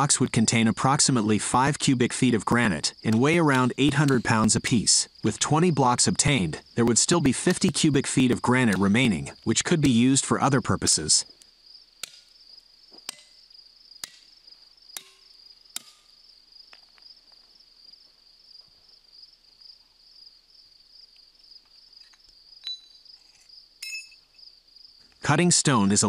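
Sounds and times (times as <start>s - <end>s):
insects chirring: 0.0s - 26.0s
hammer striking steel wedges: 3.1s - 4.7s, 12.0s - 12.3s, 13.1s - 13.4s, 14.0s - 14.3s, 15.0s - 16.1s
light metallic clinks: 22.1s - 23.1s, 23.8s - 24.2s.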